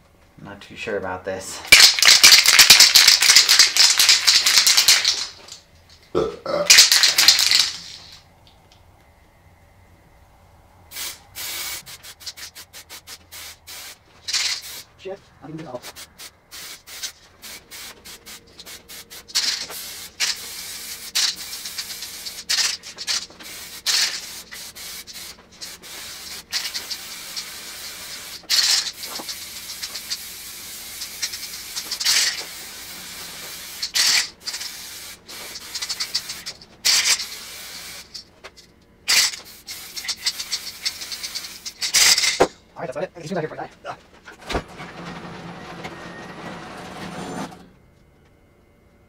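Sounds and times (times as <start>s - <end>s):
aerosol can spraying: 10.9s - 14.9s, 15.8s - 38.2s, 39.1s - 42.1s.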